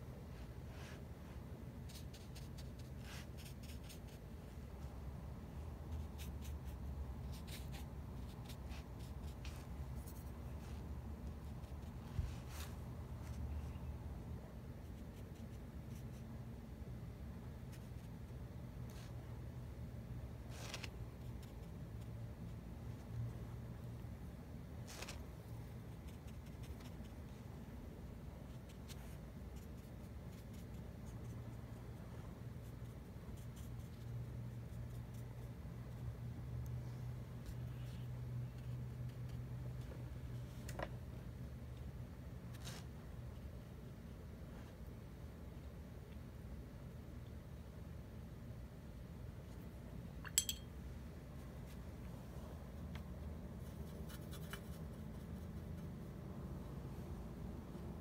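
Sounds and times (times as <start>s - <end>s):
faint low hum: 0.0s - 58.0s
soft ticks and scratches: 24.8s - 27.5s, 51.3s - 56.0s.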